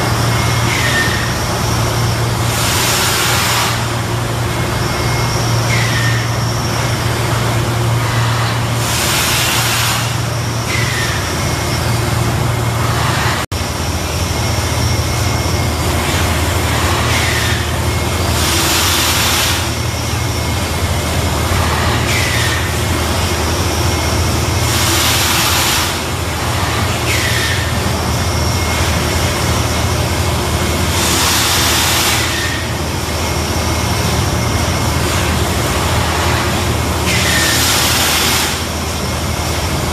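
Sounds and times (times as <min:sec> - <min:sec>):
machinery low hum: 0:00.0 - 0:39.9
hissing air bursts: 0:08.8 - 0:10.3.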